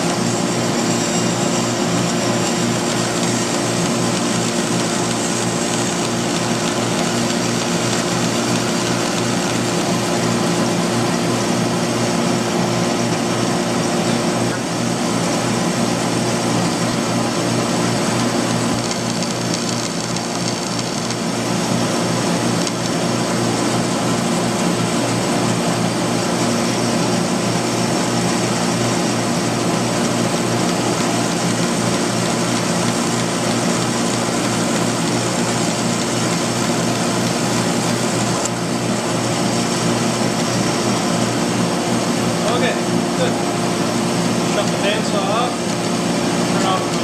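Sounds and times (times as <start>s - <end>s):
bandsaw cutting wood: 0.0s - 11.8s.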